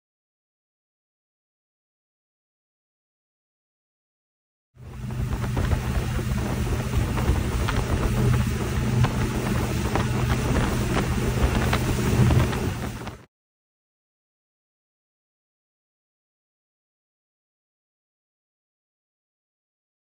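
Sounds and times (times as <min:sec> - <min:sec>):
outboard motor humming: 0:04.8 - 0:13.3
wind on microphone: 0:04.8 - 0:13.3.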